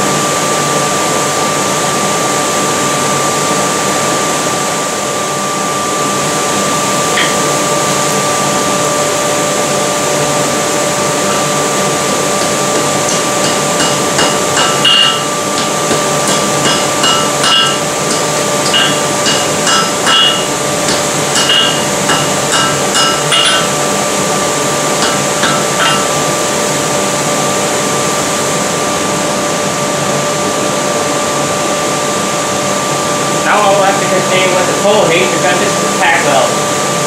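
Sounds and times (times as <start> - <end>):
forge blower hum and hiss: 0.0 - 37.0
hammer blows on anvil: 12.4 - 23.8, 25.0 - 26.2.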